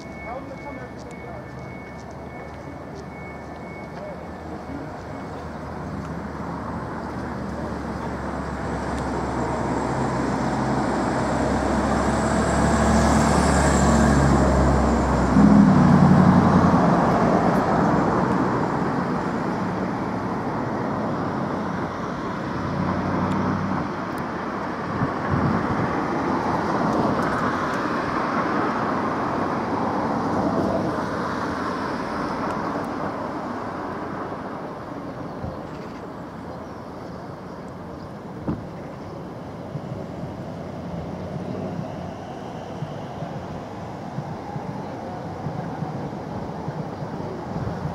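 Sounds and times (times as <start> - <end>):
traffic rumble: 0.0 - 47.9
heavy vehicle passing: 4.7 - 24.0.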